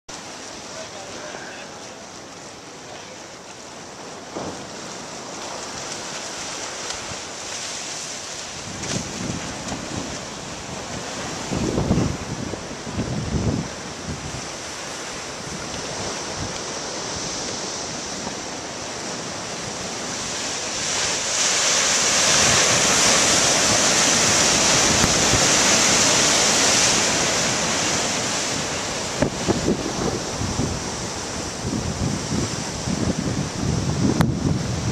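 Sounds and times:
ocean waves breaking: 0.1 - 34.9
wind buffeting microphone: 8.5 - 21.2, 22.1 - 34.9.

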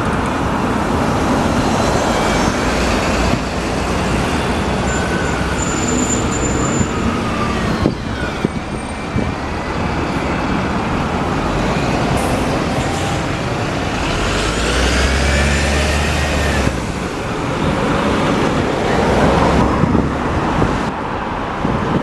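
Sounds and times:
buses driving past: 0.0 - 22.0
high-pitched squeal: 1.5 - 16.7.

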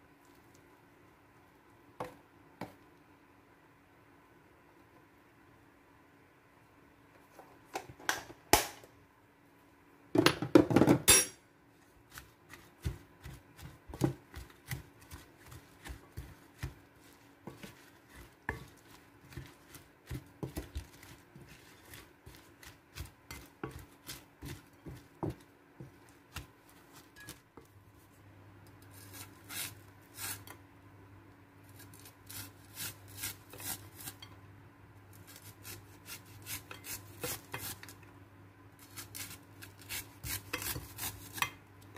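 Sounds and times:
faint steady hum: 0.0 - 41.9
wooden spatula scraping a plate: 12.1 - 27.4.

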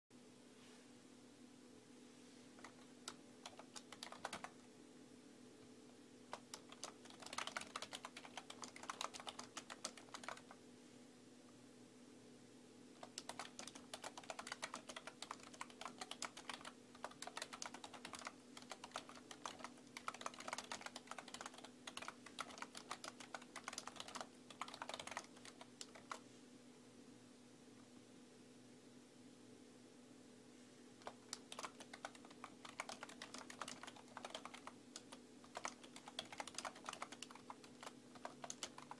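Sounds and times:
faint low hum: 0.1 - 38.9
typing on computer keyboard: 2.6 - 4.6, 6.3 - 10.6, 13.0 - 26.2, 31.0 - 38.9.

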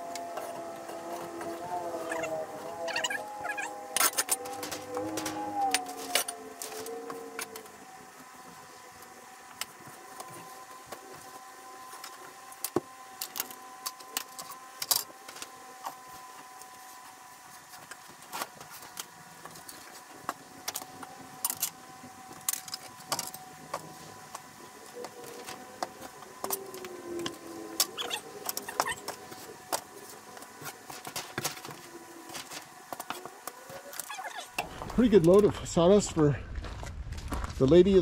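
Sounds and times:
wavering tone: 0.0 - 14.6, 23.3 - 30.2
faint steady hum: 0.0 - 38.0.

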